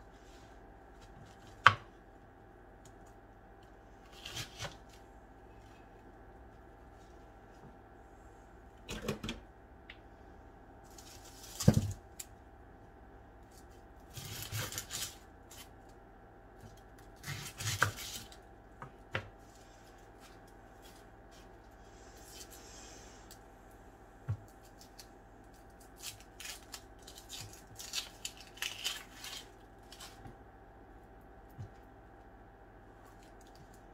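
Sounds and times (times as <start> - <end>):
onion skins crackling: 10.8 - 12.4, 13.4 - 16.0, 24.4 - 30.3.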